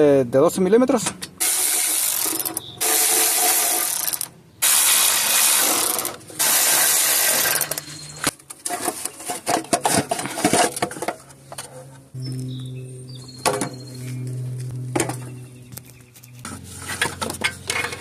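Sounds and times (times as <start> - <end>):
power ratchet spinning bolts: 1.4 - 7.9.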